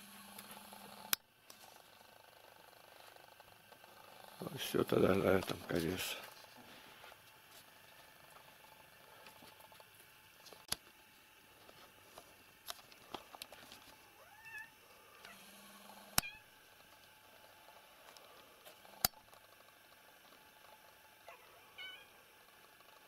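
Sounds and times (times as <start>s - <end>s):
cat meowing: 21.3s - 22.1s.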